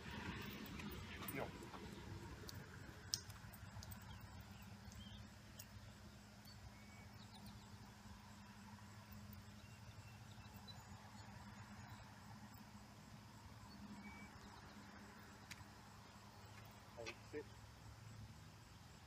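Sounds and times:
low steady hum: 0.0 - 19.0
faint high chirps: 3.6 - 15.0.

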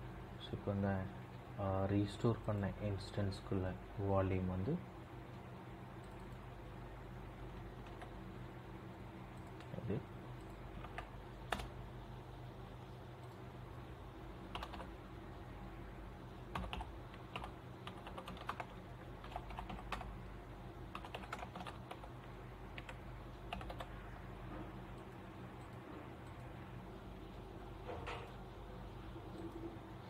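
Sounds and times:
steady low hum: 0.0 - 30.0
keyboard typing: 7.8 - 8.2, 9.3 - 11.8, 14.5 - 15.0, 16.5 - 20.2, 20.9 - 24.0.

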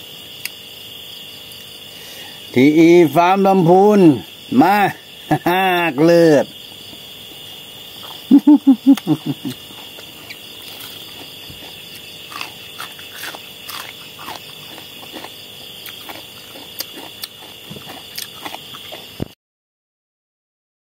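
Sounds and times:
man chewing and eating: 6.5 - 19.4.

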